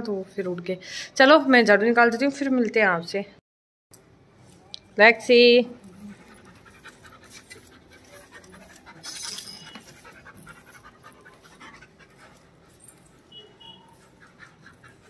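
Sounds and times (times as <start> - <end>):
dog panting: 5.8 - 15.0
broom sweeping stone tiles: 6.9 - 10.8.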